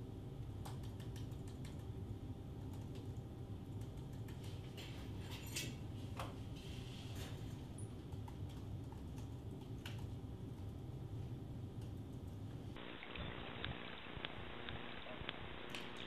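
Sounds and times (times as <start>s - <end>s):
steady low hum: 0.0s - 16.0s
keyboard typing: 0.6s - 2.0s, 2.6s - 4.7s.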